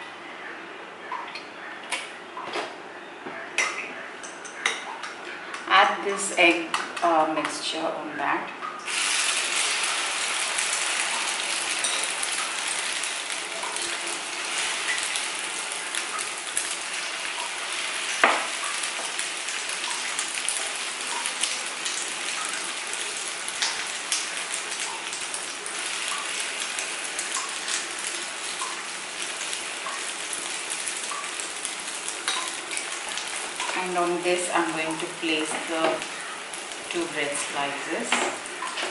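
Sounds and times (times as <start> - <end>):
egg mixture sizzling in oil: 8.8 - 38.9.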